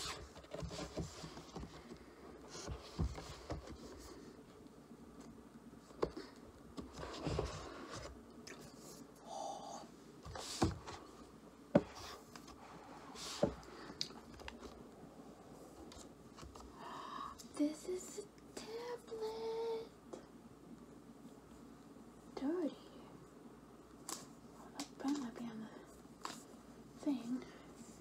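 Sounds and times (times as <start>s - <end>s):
cardboard and paper rustling: 0.0s - 4.3s, 5.9s - 8.2s.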